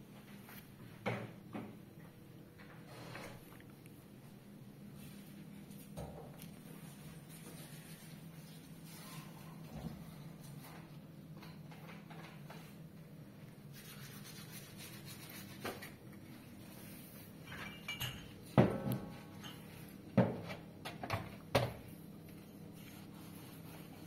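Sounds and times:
tableware clinking and knocking: 17.5s - 20.3s.

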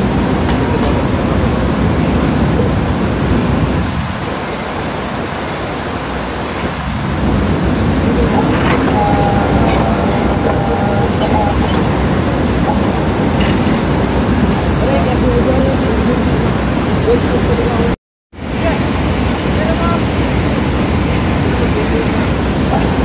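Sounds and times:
rebar bending machine rumbling: 7.0s - 17.8s.

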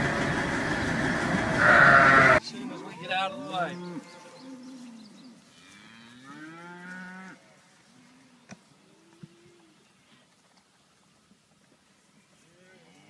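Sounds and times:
cattle mooing: 1.6s - 7.4s.

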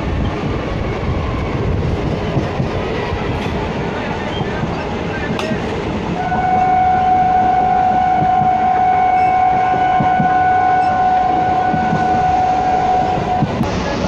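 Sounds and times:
train rumbling along track: 0.0s - 14.0s
train horn blast: 6.2s - 13.6s.

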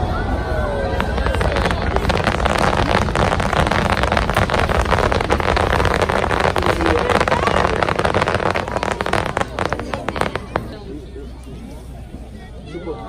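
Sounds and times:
low rumble of fireworks: 0.0s - 12.3s
fireworks crackling bursts: 0.8s - 11.1s.

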